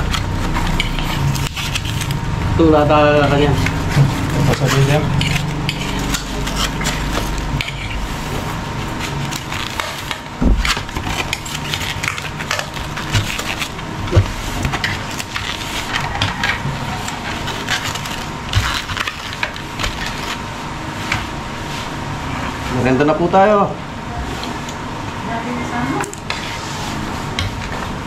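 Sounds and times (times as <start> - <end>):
cutlery scraping on plates: 3.5 - 8.0.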